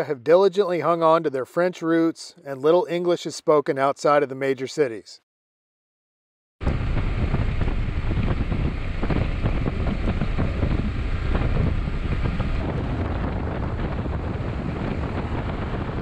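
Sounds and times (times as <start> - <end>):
road noise: 6.6 - 16.0
wind rushing over microphone: 6.6 - 16.0.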